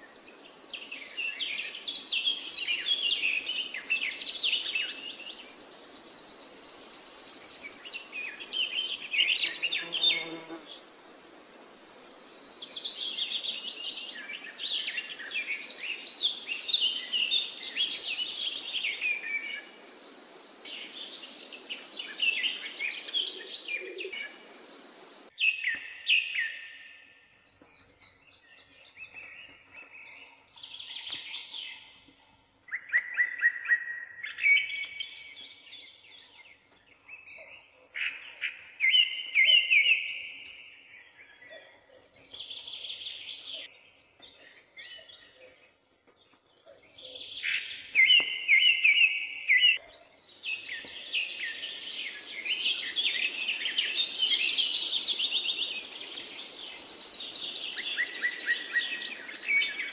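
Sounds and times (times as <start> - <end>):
birds singing: 0.0 - 10.8, 11.6 - 59.9
faint hiss: 0.0 - 25.3, 51.0 - 59.9.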